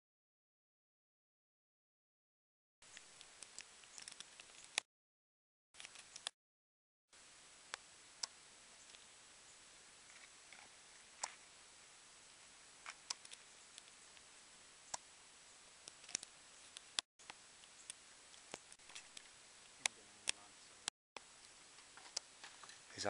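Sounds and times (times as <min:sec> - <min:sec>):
sharp clicks and ticks: 0:05.8 - 0:06.4, 0:12.8 - 0:14.0, 0:15.8 - 0:20.4
faint steady hiss: 0:07.1 - 0:23.0.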